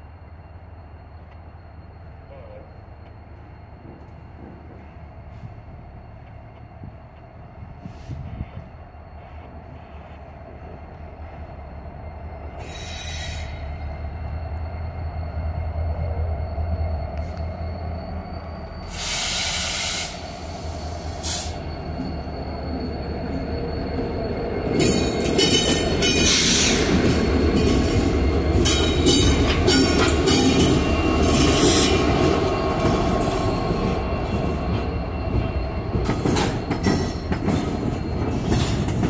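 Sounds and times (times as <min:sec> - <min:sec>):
diesel locomotive engine drone: 0:00.0 - 0:39.0
wheels clicking and squealing on rails: 0:00.0 - 0:39.0
hiss burst: 0:18.9 - 0:21.6.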